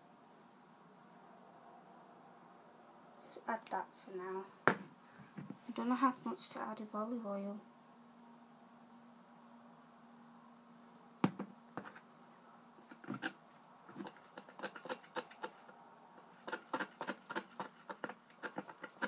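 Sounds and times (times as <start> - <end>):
jar knocking on tabletop: 11.2 - 11.5
stick scraping against cup: 12.8 - 19.0.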